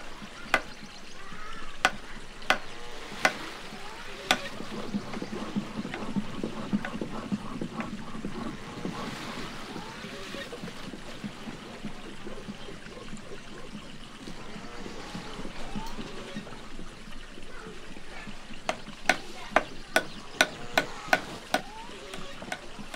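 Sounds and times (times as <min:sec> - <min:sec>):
small irregular knocks: 0:00.0 - 0:09.0, 0:18.3 - 0:22.9
wooden roller rolling and grinding: 0:00.0 - 0:22.9.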